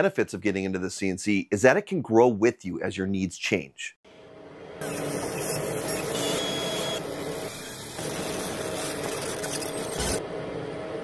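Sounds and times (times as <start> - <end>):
machine-like hum: 4.1 - 11.0.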